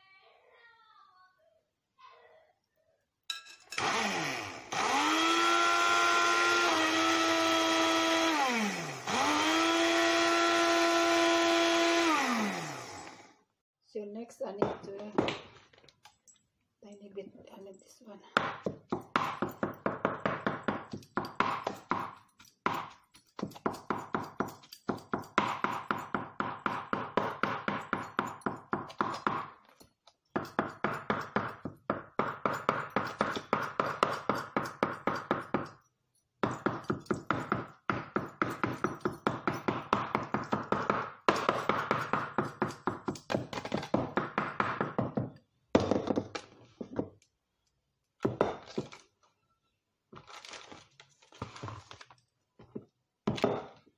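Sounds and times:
knife chopping on wooden board: 18.4 - 29.6, 30.4 - 35.8, 36.4 - 46.2.

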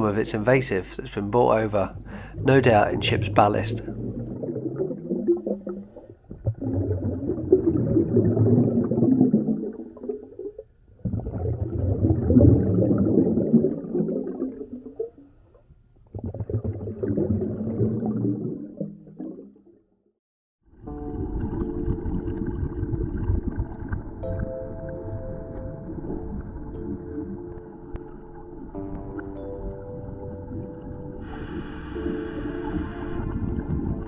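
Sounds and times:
exhaled breath bubbling underwater: 1.9 - 15.3, 16.0 - 19.6.

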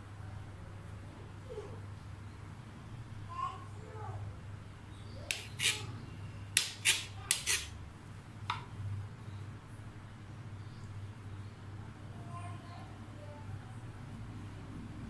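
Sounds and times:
knife blade clicking on board: 5.3 - 5.8, 6.6 - 7.7
knife sawing through bread crust: 5.3 - 5.9, 6.6 - 7.7.

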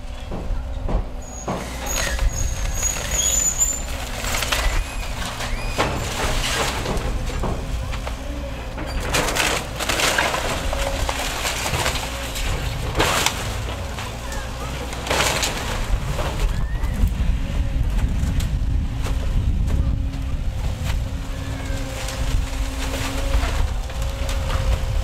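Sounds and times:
excavator engine running: 0.0 - 25.0
crashing and splintering wood: 0.3 - 25.0
thin high squeal: 1.2 - 3.9.

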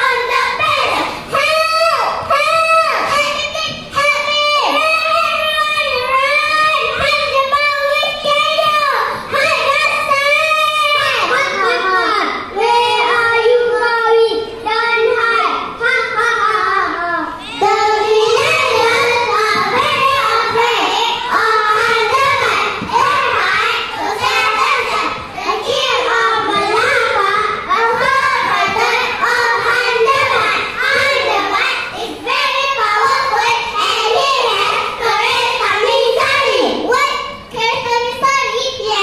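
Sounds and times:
children singing in unison: 16.9 - 36.8.

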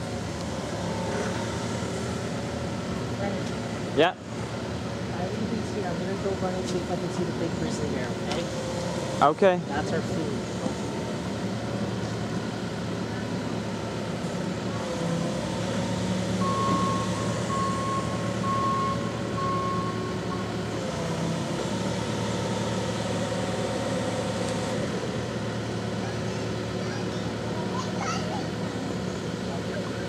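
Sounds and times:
engine revving under load: 0.0 - 30.0
reversing alarm beeps: 16.4 - 20.6.

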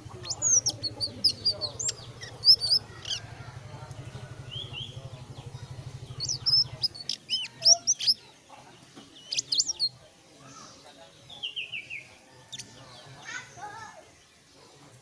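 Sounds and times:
low pulsing motor hum: 0.0 - 7.1
songbird chirping and whistling: 0.0 - 8.2, 9.2 - 9.9.

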